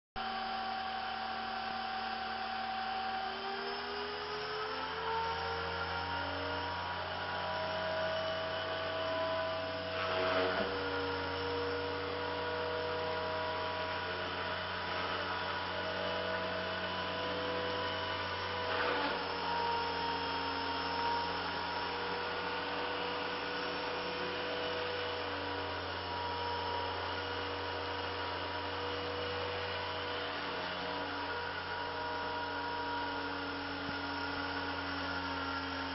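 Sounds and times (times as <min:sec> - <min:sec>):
rc helicopter motor whine: 0:00.2 - 0:35.9.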